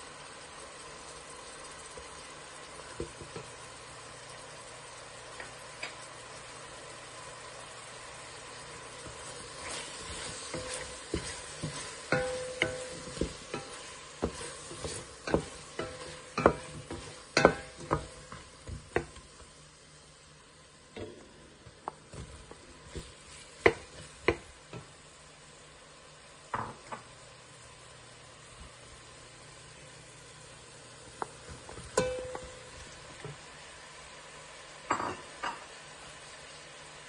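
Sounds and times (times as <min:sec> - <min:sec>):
vegetables sizzling: 0:00.0 - 0:37.0
wooden spoon knocking and scraping pot: 0:02.8 - 0:03.5, 0:09.0 - 0:19.5, 0:21.0 - 0:24.9, 0:31.2 - 0:33.4.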